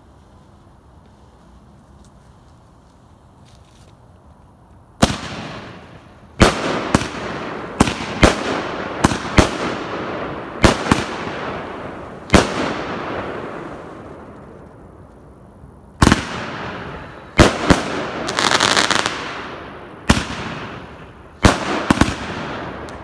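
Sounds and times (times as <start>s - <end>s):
firework bangs: 5.0s - 14.6s, 16.0s - 23.0s.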